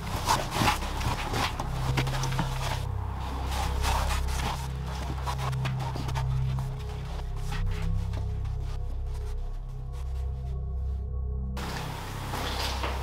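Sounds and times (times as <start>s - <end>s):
footsteps on stone stairs: 0.0s - 8.5s, 11.6s - 13.0s
low steady drone: 0.0s - 13.0s.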